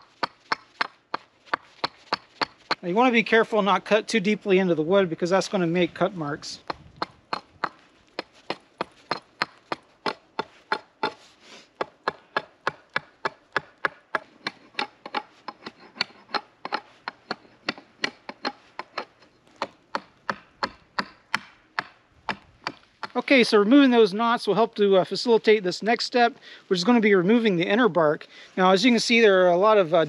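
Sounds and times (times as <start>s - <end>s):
hatchet chopping wood: 0.0s - 2.8s, 6.6s - 23.2s.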